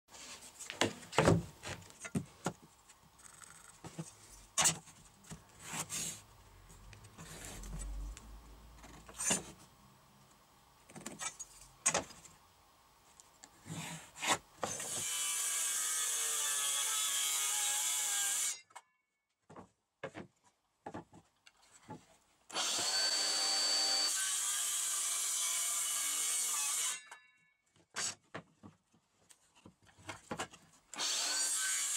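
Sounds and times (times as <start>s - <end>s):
circular saw cutting plywood: 22.5s - 27.1s, 31.0s - 31.9s.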